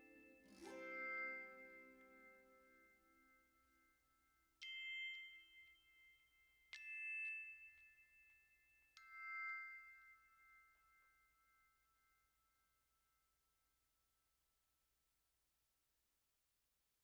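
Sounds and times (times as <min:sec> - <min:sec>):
soft ringing bell notes: 0:00.0 - 0:12.5.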